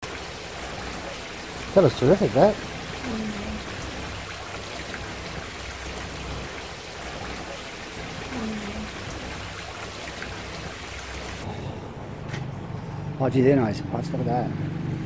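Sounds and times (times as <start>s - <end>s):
fountain water splashing: 0.0s - 11.5s.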